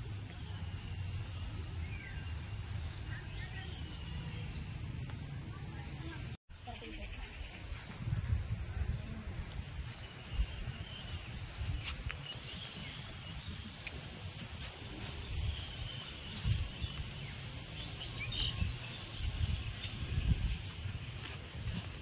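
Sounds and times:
wind buffeting microphone: 7.0 - 22.0.

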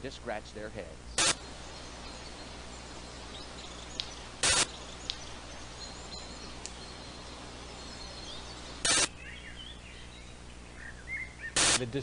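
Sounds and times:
steady hiss and low hum: 0.0 - 12.0
high bird chirps: 1.1 - 12.0
loud burst of hiss: 4.4 - 4.7, 8.8 - 9.1, 11.6 - 11.9.

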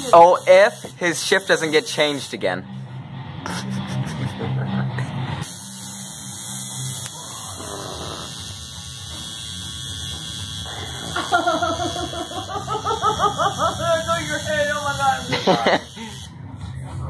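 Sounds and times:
tattoo machine buzzing: 0.0 - 2.4, 5.4 - 16.6.

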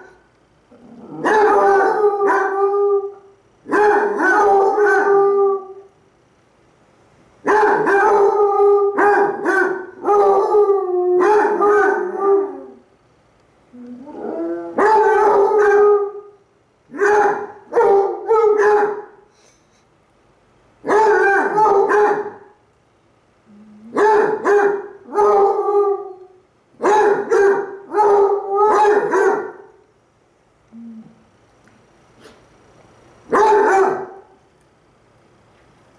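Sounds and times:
dogs howling: 0.8 - 3.3, 10.0 - 12.8.

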